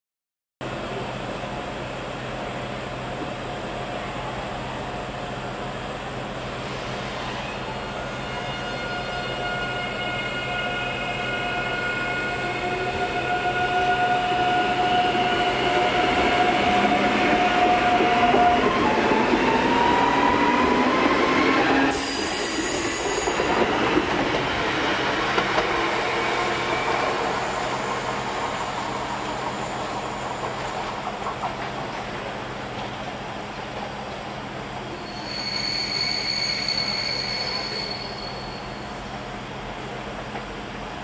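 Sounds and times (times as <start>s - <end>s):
wheels rumbling on rail: 12.0s - 41.0s.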